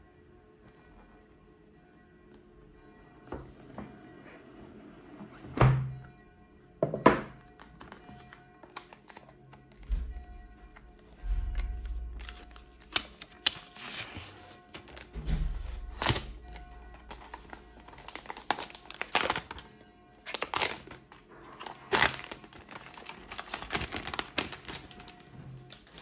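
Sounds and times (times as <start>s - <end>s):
background music: 0.0s - 26.0s
packaging crinkling: 7.8s - 9.9s, 15.8s - 26.0s.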